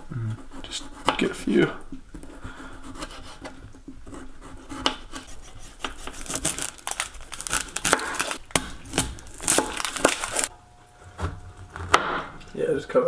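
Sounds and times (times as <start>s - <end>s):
onion skin crinkling: 5.2s - 10.5s.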